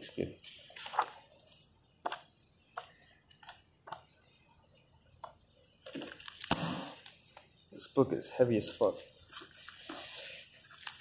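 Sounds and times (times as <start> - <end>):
book pages turning: 0.7 - 3.7, 5.7 - 7.5, 9.1 - 11.0
paper rustling: 9.3 - 11.0.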